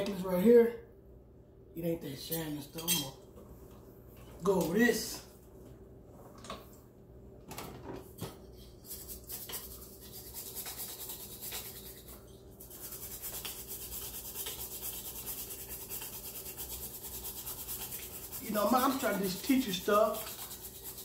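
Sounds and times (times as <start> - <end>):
toothbrush scrubbing: 8.7 - 21.0.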